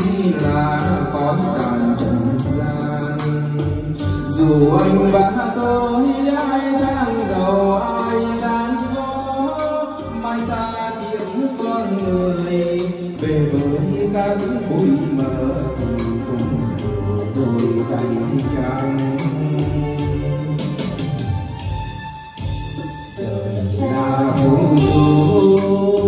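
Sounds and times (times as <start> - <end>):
karaoke song over loudspeakers: 0.0 - 26.0.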